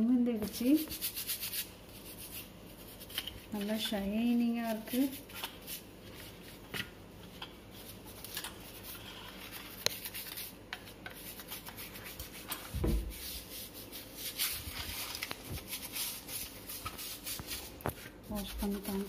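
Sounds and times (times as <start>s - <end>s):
toothbrush scrubbing wire mesh: 13.4s - 19.0s.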